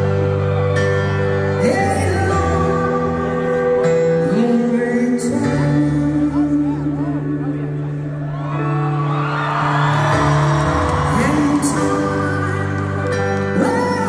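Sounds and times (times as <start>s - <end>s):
man singing lead vocal: 1.5s - 8.2s, 10.8s - 14.0s.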